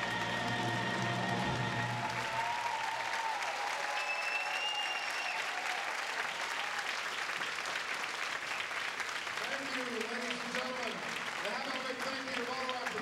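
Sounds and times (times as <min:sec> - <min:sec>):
audience applauding: 0:00.0 - 0:13.0
held whistle: 0:03.9 - 0:05.5.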